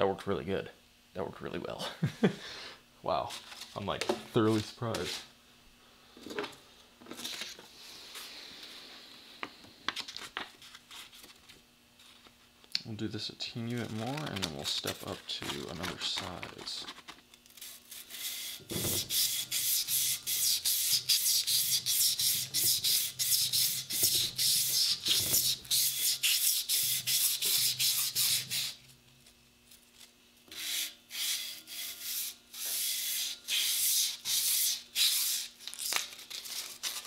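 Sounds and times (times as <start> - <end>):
sandpaper rasping on metal: 17.6 - 28.8, 30.5 - 35.5.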